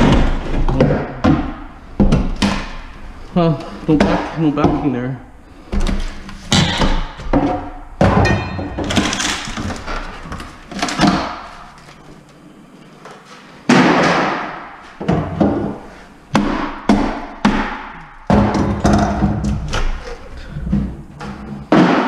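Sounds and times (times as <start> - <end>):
demolition tool striking wood: 6.5 - 9.9, 21.7 - 22.0.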